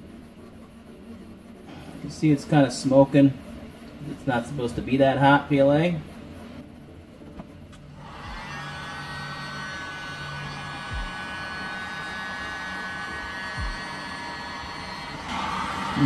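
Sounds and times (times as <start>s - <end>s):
heat gun blowing hiss: 8.0s - 16.0s.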